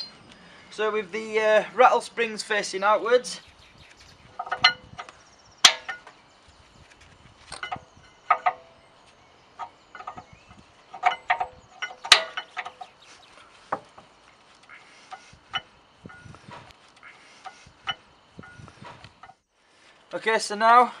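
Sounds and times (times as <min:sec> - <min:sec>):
metal brake pads clicking and clinking: 0:04.4 - 0:06.2, 0:10.9 - 0:13.0.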